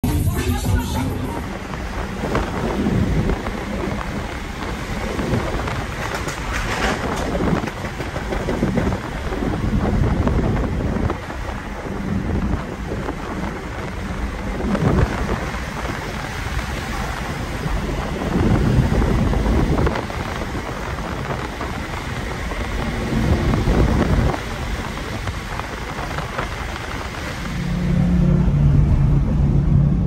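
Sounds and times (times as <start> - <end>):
wind and road noise in a car: 0.0 - 30.0
wind buffeting microphone: 1.2 - 30.0.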